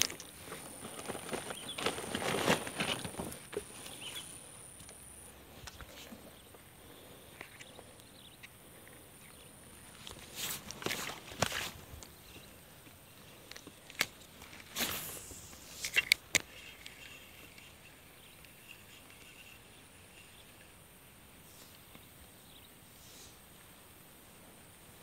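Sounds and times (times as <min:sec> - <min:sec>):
handling rustles: 0:00.0 - 0:04.4, 0:09.3 - 0:20.6
faint outdoor background: 0:00.0 - 0:25.0
thin high chirping: 0:03.7 - 0:04.6, 0:14.6 - 0:21.7.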